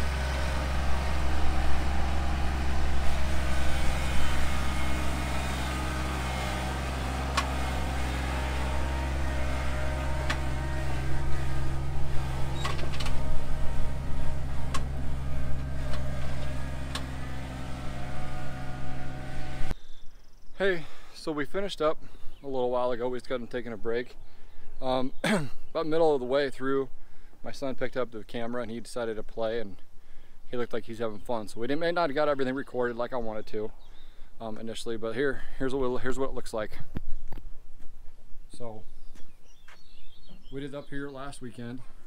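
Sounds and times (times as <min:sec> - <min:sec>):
tractor diesel engine running: 0:00.0 - 0:19.8.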